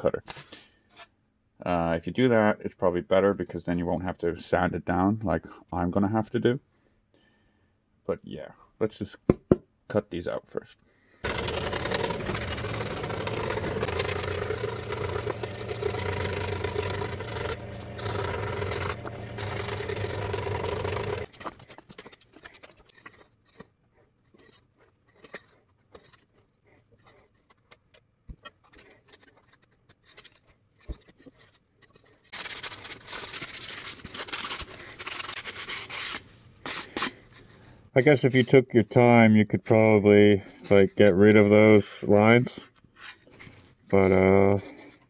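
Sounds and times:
hand sanding foam: 11.2 - 21.4
scroll saw cutting foam: 11.2 - 23.7, 28.8 - 37.4
foam pieces clicking and rustling: 11.2 - 37.4.

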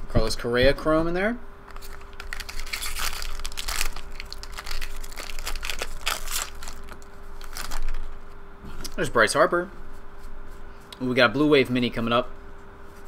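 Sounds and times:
foil wrapper crinkling: 1.7 - 8.3.

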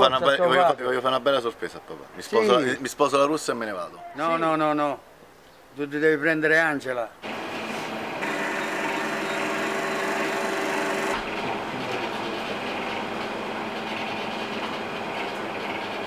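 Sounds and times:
espresso machine hum: 7.2 - 13.1.

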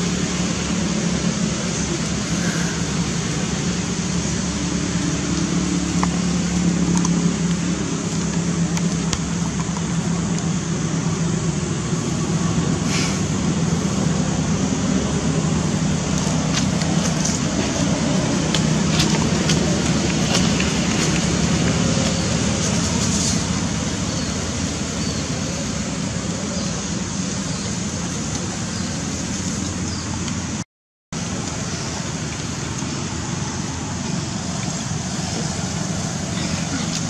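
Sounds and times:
low motor-like rumble: 0.0 - 30.6, 31.2 - 37.0
hiss: 0.8 - 4.9, 12.8 - 14.1.

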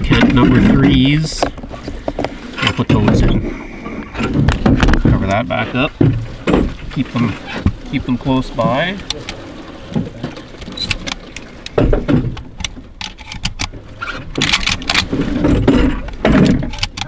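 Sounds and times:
gear handling clicks and knocks: 4.0 - 6.9, 10.2 - 17.0.

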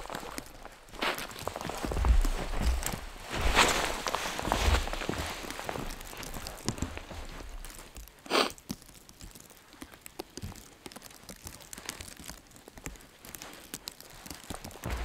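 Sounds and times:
boots crunching in snow: 0.0 - 8.5, 14.7 - 15.0.

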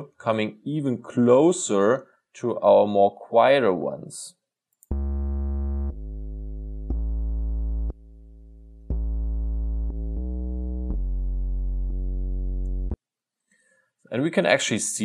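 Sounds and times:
synthesized bass notes: 4.8 - 13.0.

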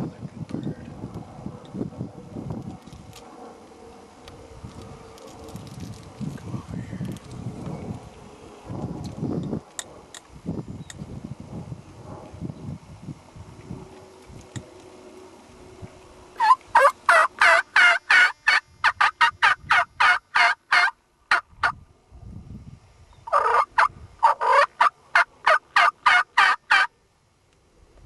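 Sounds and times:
turkey yelping: 16.4 - 21.4, 23.3 - 26.9.

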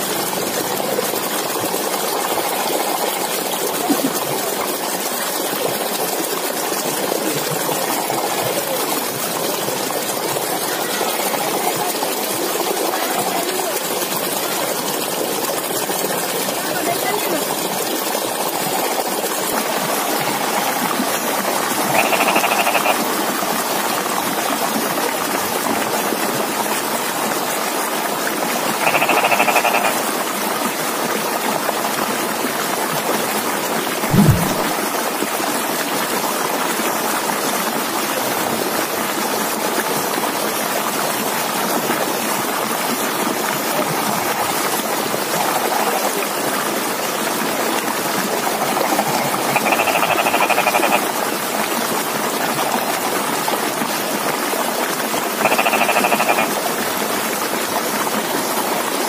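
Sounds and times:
frogs croaking: 1.9 - 3.8, 7.7 - 9.1, 19.6 - 23.7, 28.7 - 30.2, 48.4 - 51.2, 55.3 - 56.7
low thump: 34.1 - 34.7.

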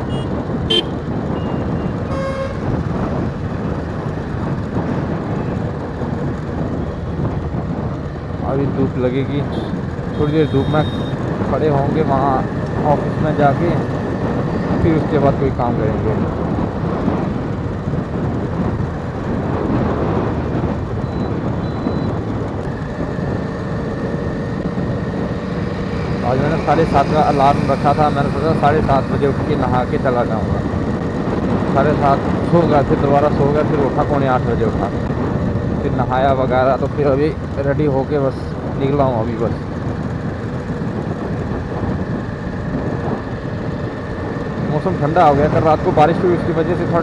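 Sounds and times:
motorcycle wind and road noise: 0.0 - 47.0
vehicle horn honk: 0.1 - 2.7, 9.5 - 11.2
short sharp beep: 21.0 - 22.1.

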